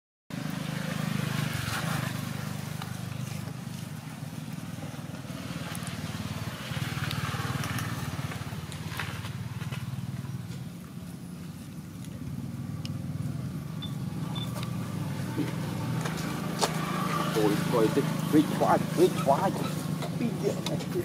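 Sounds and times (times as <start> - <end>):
engine humming: 0.3 - 21.0.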